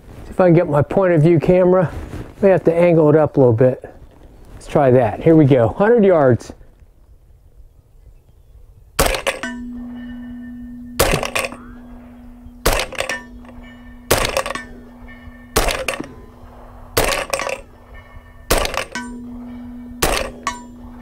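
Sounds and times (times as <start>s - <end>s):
suppressed gunshots: 9.0s - 9.6s, 11.0s - 11.7s, 12.6s - 14.7s, 15.6s - 16.2s, 17.0s - 17.6s, 18.5s - 19.0s, 20.0s - 20.5s
steel target clanging: 9.0s - 21.0s.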